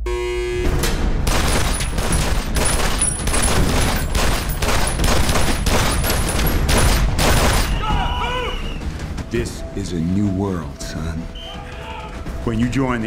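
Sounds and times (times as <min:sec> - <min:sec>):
handgun shots: 0:01.3 - 0:07.8.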